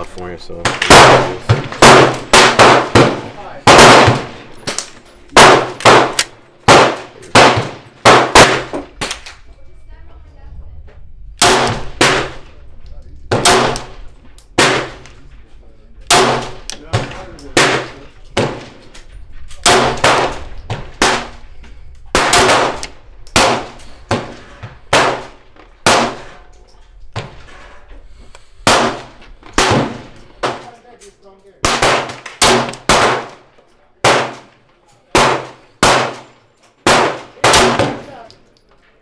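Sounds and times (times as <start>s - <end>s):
pistol shots with echo: 0.6s - 4.8s, 5.4s - 9.2s, 11.4s - 12.5s, 13.3s - 14.0s, 14.6s - 15.1s, 16.0s - 18.7s, 19.6s - 21.4s, 22.1s - 26.4s, 28.6s - 30.7s, 31.6s - 38.1s.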